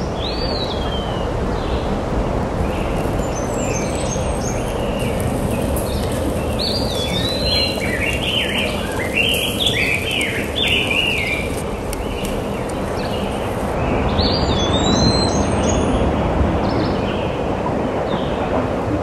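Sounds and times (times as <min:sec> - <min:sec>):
wind rushing over microphone: 0:00.0 - 0:19.0
small bird chirping: 0:03.2 - 0:13.6.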